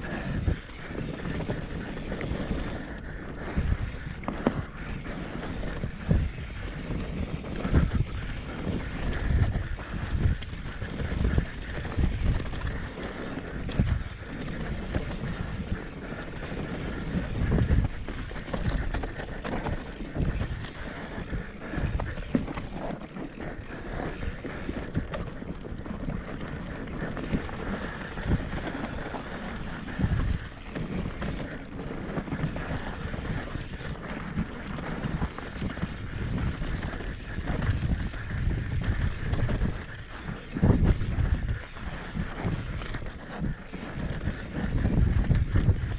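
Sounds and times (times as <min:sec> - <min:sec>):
bike tyres on dirt: 0:00.0 - 0:45.9
wind buffeting microphone: 0:00.0 - 0:45.9.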